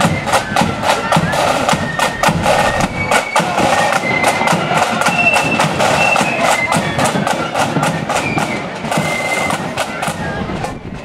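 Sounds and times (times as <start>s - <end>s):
flutes in unison: 0.0s - 11.0s
snare drums: 0.0s - 11.0s
bass drum beating: 0.1s - 4.2s.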